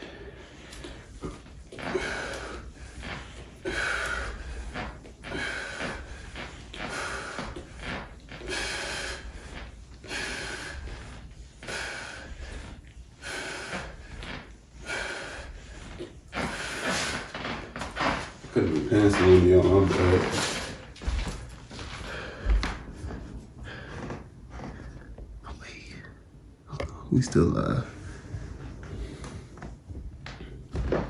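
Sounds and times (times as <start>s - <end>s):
person breathing hard: 0.0s - 18.4s, 20.3s - 25.3s.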